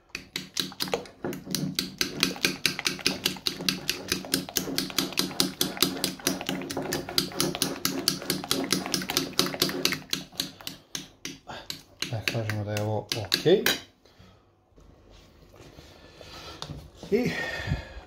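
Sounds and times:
utensil clicking against plate: 7.2 - 13.8.

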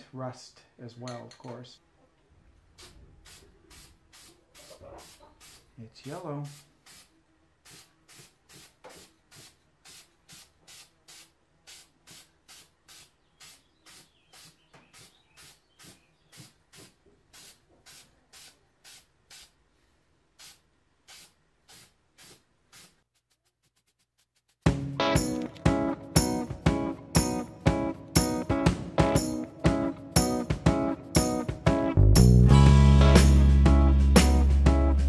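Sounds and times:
spray paint can hissing: 2.8 - 5.7, 6.4 - 19.6, 20.3 - 24.7.

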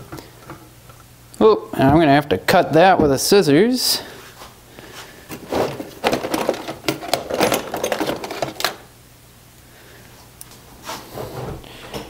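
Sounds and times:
tools clattering in a drawer: 5.3 - 8.9.

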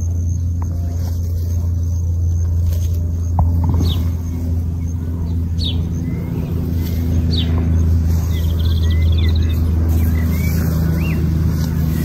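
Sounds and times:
low mechanical drone: 0.0 - 12.0
bird chirps: 3.1 - 12.0.

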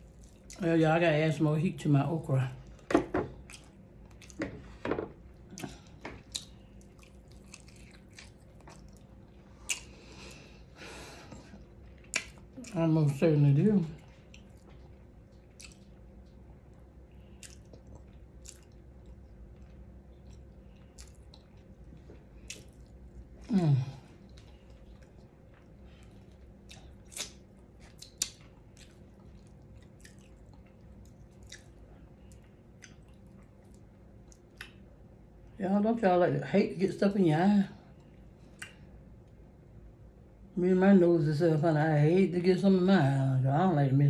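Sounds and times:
chewing mouth sounds: 5.4 - 10.0, 11.6 - 12.7, 14.0 - 16.5, 17.2 - 23.4, 24.2 - 34.9.

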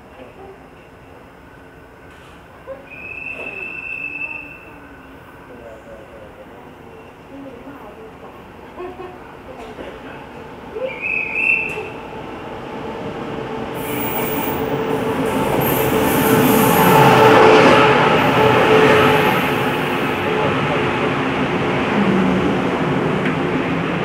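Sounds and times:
train wheels rumbling: 11.0 - 24.0.

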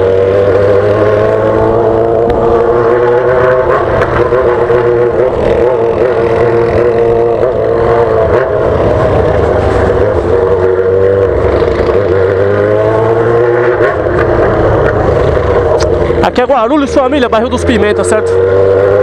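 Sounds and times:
motorcycle engine running loud: 0.0 - 19.0.

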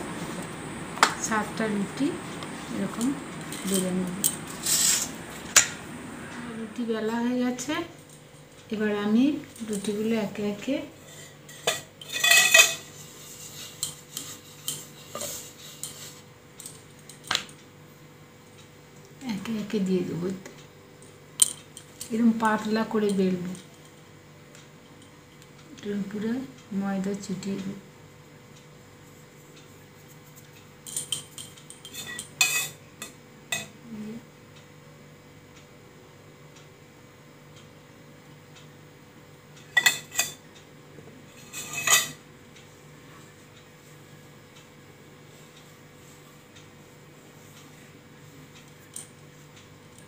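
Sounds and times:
steel plate scraping and clattering: 4.5 - 5.8, 41.4 - 42.2.

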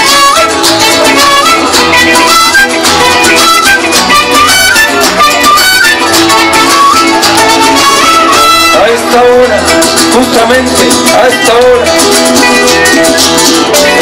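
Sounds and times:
wooden flute melody: 0.0 - 9.4
strummed acoustic guitars: 0.0 - 14.0.

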